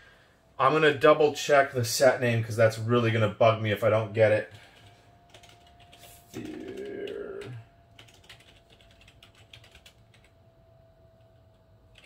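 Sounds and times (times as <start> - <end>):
loud pitched tone: 6.0 - 7.7.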